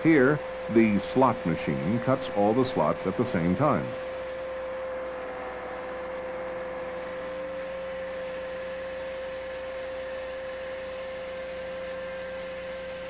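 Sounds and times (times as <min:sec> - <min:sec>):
saw blades cutting concrete: 0:00.0 - 0:04.3.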